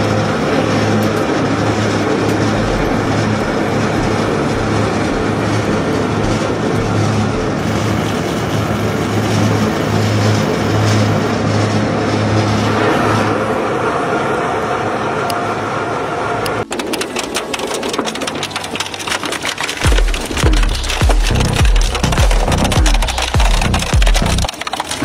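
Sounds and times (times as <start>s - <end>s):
low hum: 0.0s - 24.6s
shredder grinding waste: 16.6s - 25.0s.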